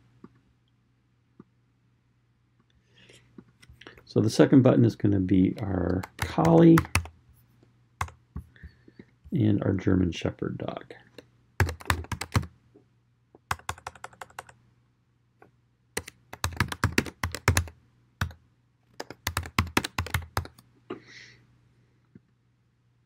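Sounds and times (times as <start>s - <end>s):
keyboard typing: 5.6s - 7.2s, 8.0s - 8.2s, 11.6s - 12.5s, 13.4s - 14.6s, 16.0s - 20.6s.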